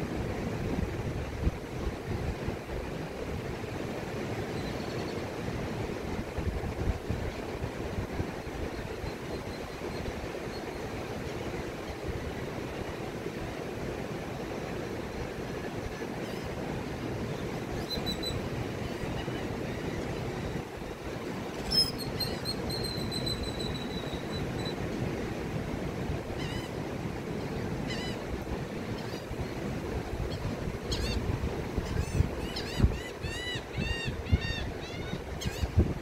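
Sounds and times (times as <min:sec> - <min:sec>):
wind: 0:00.0 - 0:36.0
gulls calling: 0:26.3 - 0:35.8.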